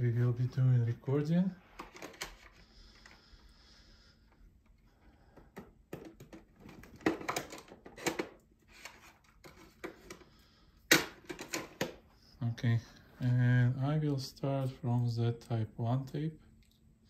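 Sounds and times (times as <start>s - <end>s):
plastic cassette cases clacking: 6.0s - 10.2s.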